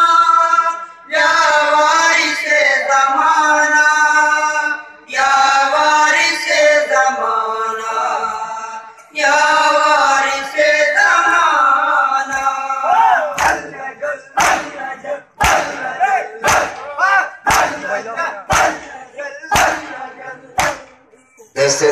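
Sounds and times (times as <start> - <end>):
men chanting in unison: 0.0 - 21.1
men shouting chants: 10.2 - 21.1.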